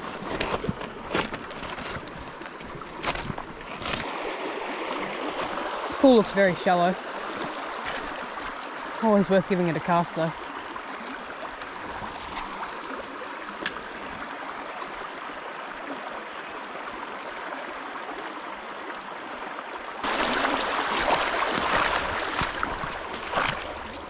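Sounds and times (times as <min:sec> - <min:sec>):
rough water rush with knocks: 0:00.0 - 0:15.0, 0:19.9 - 0:24.0
creek water trickling: 0:00.0 - 0:24.0.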